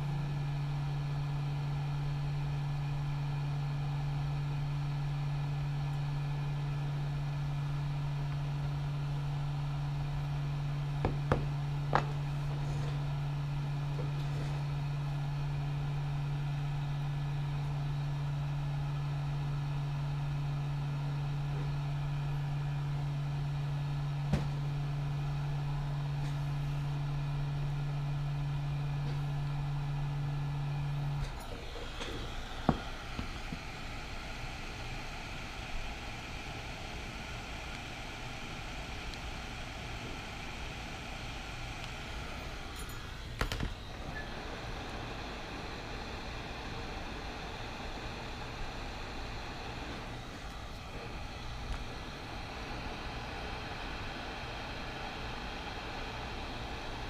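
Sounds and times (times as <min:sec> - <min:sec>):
hot air gun blower humming: 0:00.0 - 0:57.0.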